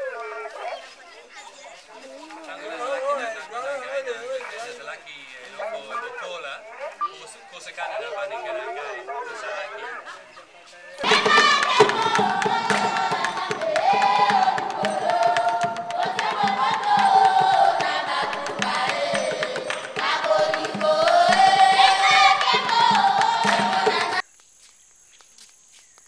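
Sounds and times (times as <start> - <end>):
choir singing: 11.0 - 24.2.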